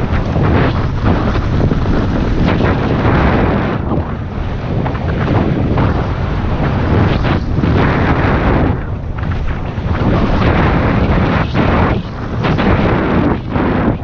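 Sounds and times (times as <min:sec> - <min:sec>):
bike knocking and rattling: 0:00.0 - 0:03.3
wind noise on microphone: 0:00.0 - 0:14.0.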